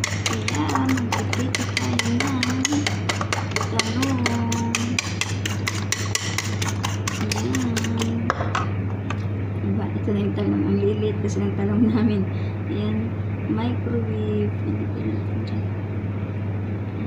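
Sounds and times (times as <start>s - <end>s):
fork beating eggs in bowl: 0.0s - 8.3s.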